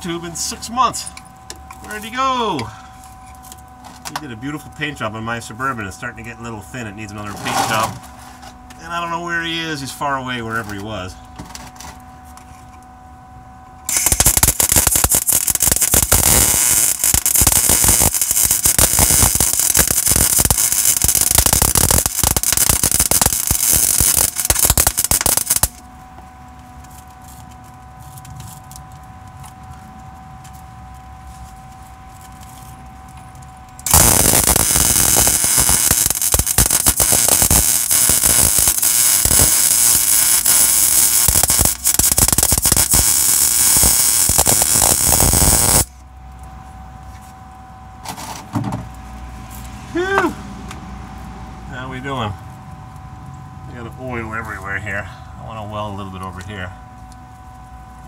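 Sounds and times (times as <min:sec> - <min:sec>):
steady hum: 0:00.0 - 0:58.0
welding arc crackling: 0:13.9 - 0:46.0.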